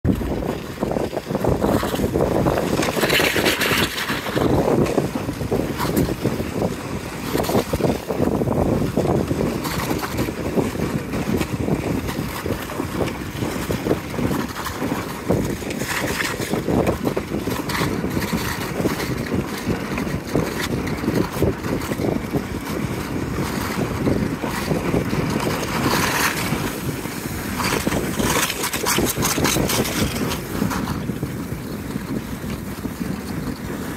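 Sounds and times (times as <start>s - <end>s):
sled scraping over snow: 0.0s - 33.9s
wind buffeting microphone: 0.0s - 33.9s.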